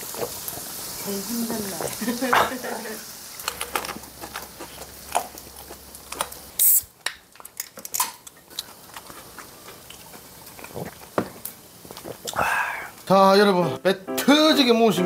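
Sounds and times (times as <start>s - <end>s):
soda can popping open with hiss: 6.2s - 7.2s.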